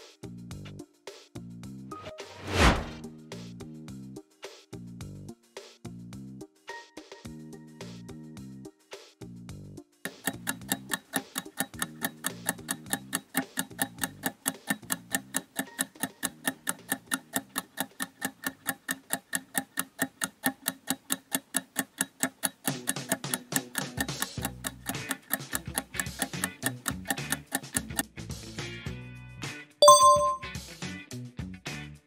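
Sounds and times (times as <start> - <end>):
rapid clock ticking: 10.1 - 28.0.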